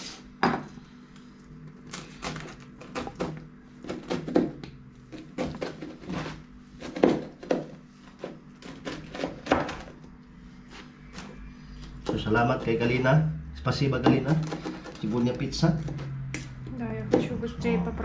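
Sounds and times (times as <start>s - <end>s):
knife chopping pizza on board: 2.2s - 9.9s, 12.0s - 13.0s.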